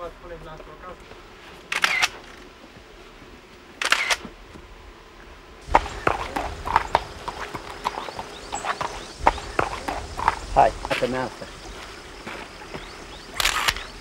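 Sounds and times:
horse hooves clip-clopping: 0.4 - 14.0
camera shutter click: 1.7 - 2.4, 3.8 - 4.3, 13.4 - 14.0.

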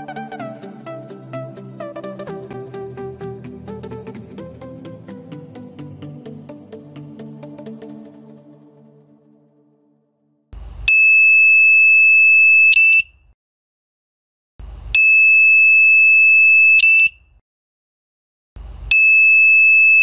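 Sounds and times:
loud high-pitched alarm beeps: 10.9 - 13.2, 15.0 - 17.2, 18.9 - 20.0.

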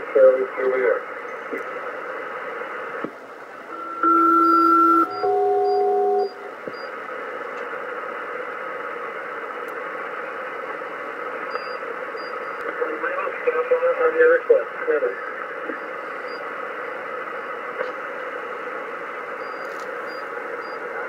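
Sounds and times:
radio static hiss: 0.0 - 3.8, 6.3 - 21.0
paired radio tones: 9.8 - 21.0.

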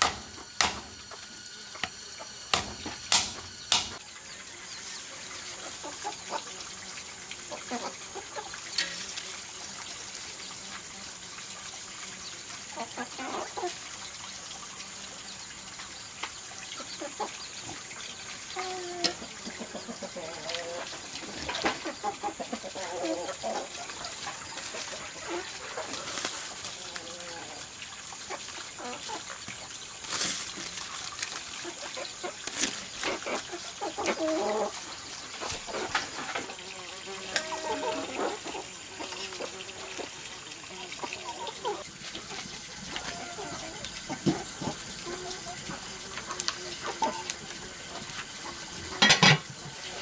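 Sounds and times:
chickens clucking: 0.0 - 10.8, 12.1 - 14.0, 16.2 - 50.0
stalks rustling and knocking in pot: 8.6 - 9.3, 48.9 - 49.8.

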